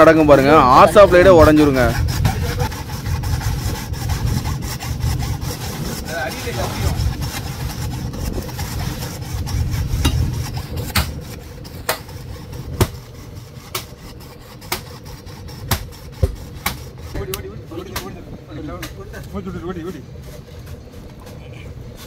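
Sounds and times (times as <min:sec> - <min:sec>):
hacksaw sawing: 0:00.0 - 0:17.4.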